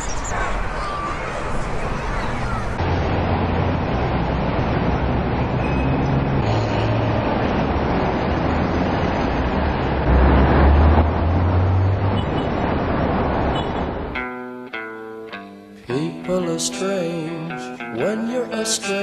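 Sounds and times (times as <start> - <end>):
cars passing on road: 0.0 - 15.0
vehicle passing close: 2.4 - 14.2.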